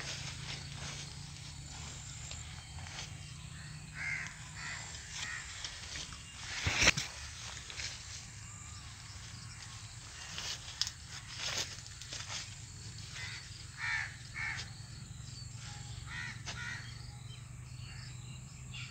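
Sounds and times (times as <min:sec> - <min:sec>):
low hum: 0:00.0 - 0:16.1
crows cawing: 0:01.1 - 0:06.0, 0:13.0 - 0:14.8, 0:15.8 - 0:17.1.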